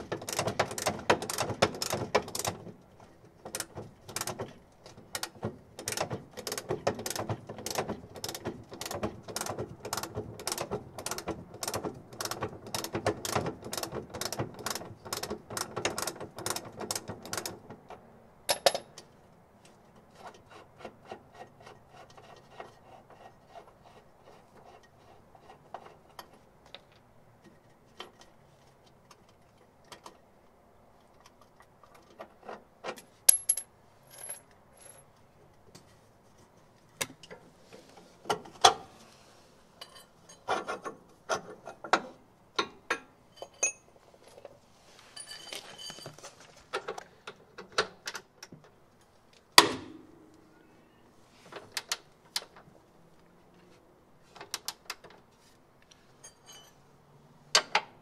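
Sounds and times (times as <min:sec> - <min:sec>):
spanner clanking on metal bolts: 0:00.0 - 0:02.6, 0:03.4 - 0:17.6.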